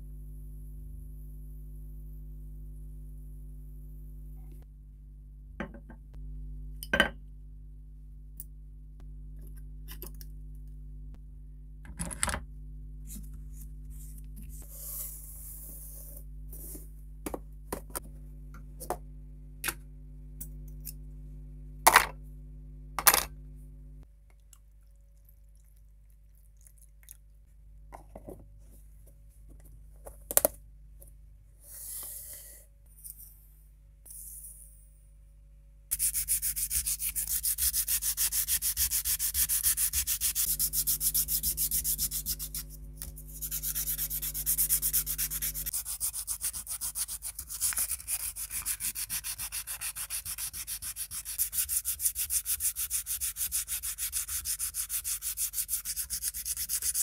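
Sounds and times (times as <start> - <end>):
steady electrical hum: 27.2 - 57.0.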